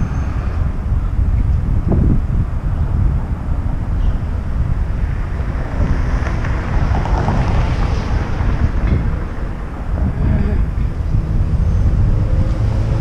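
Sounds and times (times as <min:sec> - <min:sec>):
street traffic: 0:00.0 - 0:13.0
wind buffeting microphone: 0:00.0 - 0:13.0.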